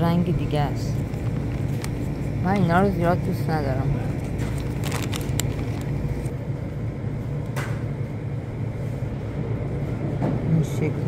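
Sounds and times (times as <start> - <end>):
machinery low hum: 0.0 - 11.0.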